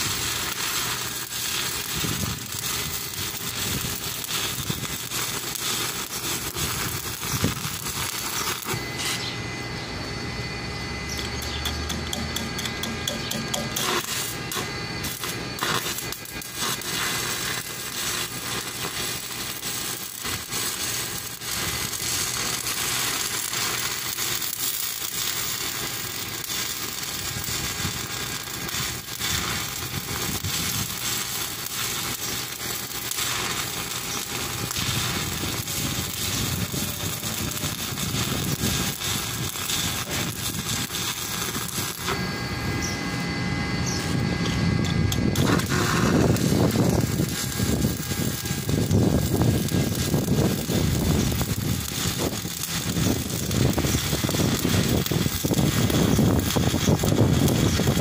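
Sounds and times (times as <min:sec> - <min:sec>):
welding arc crackling: 0:00.0 - 0:58.0.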